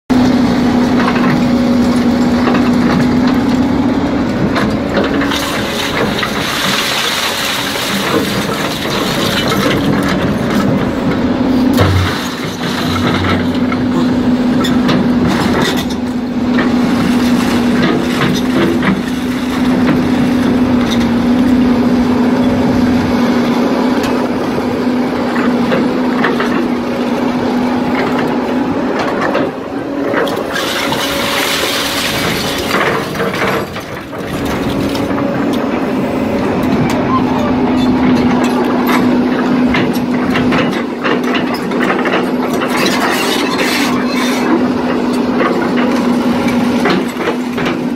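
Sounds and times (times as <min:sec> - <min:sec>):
excavator engine and hydraulics humming: 0:00.1 - 0:47.9
scrap metal clanking and rattling: 0:04.5 - 0:21.2, 0:29.0 - 0:35.8, 0:36.6 - 0:47.9.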